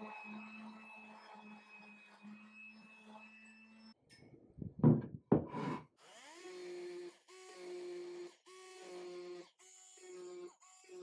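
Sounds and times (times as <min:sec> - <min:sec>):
loud knocks: 0:04.8 - 0:05.6.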